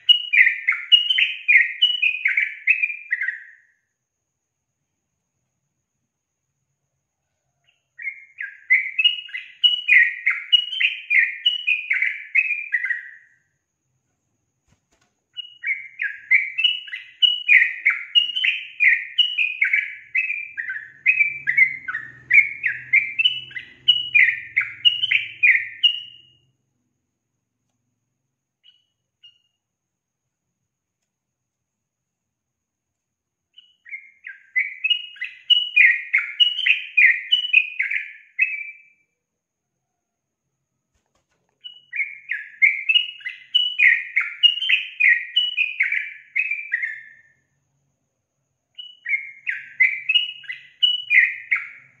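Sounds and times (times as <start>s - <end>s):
bird singing whistled notes: 0.0s - 3.9s, 7.5s - 13.6s, 15.4s - 26.5s, 28.6s - 29.6s, 33.5s - 39.1s, 41.6s - 47.5s, 48.8s - 52.0s.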